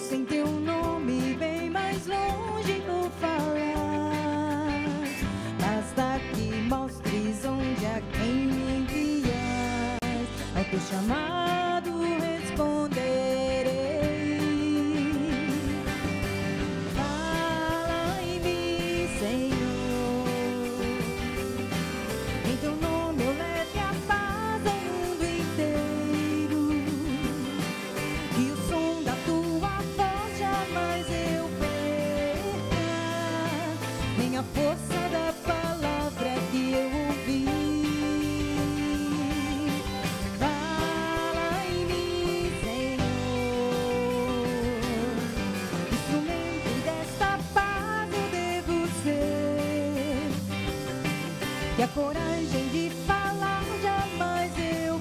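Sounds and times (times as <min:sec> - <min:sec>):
woman singing: 0:00.0 - 0:50.8, 0:51.6 - 0:55.0
live band with guitars and drums: 0:00.0 - 0:55.0.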